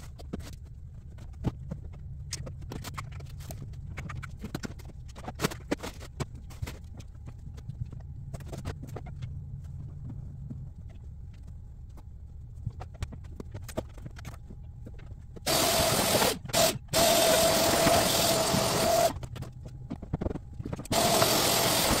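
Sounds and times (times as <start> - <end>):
vacuum cleaner motor whining: 15.5 - 19.2, 20.9 - 22.0.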